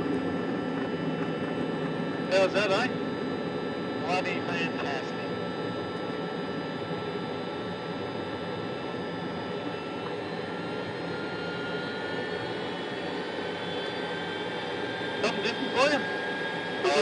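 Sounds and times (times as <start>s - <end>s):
jet engine running at low power: 0.0s - 17.0s.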